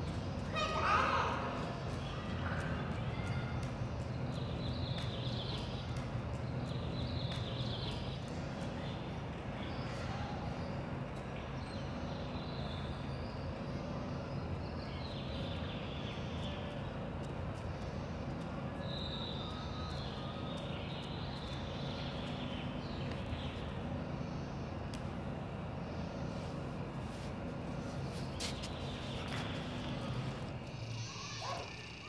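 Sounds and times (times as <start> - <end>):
constant low hum: 0.0 - 32.0
faint high chirping: 17.8 - 24.8, 27.8 - 32.0.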